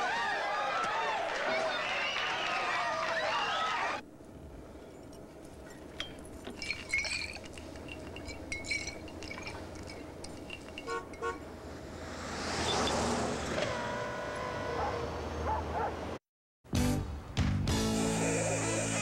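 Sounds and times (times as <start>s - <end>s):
car engine hum: 4.0s - 16.2s
car horn: 10.9s - 11.5s.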